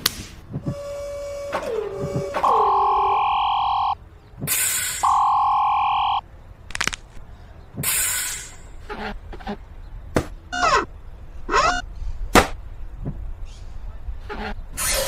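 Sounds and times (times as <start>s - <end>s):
falling whistle-like glides: 0.7s - 4.0s
long steady electronic beeps: 2.4s - 4.0s, 5.0s - 6.2s, 10.5s - 10.9s, 11.5s - 11.9s.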